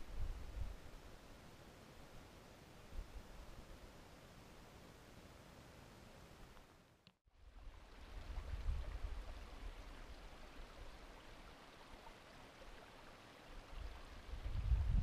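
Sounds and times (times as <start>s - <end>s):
running water stream: 7.3s - 15.0s
wind gusts on microphone: 8.0s - 9.8s, 13.7s - 15.0s.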